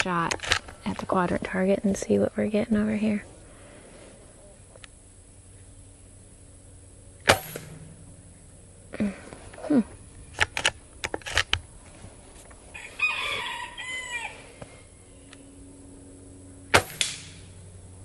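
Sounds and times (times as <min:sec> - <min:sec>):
air rifle shot: 0:07.2 - 0:08.0, 0:16.7 - 0:17.5
rooster crowing: 0:12.7 - 0:14.9.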